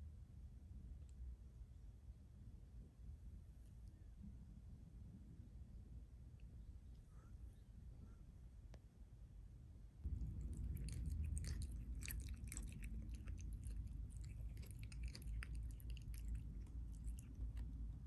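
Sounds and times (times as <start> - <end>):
cat chewing grass: 10.1 - 18.0.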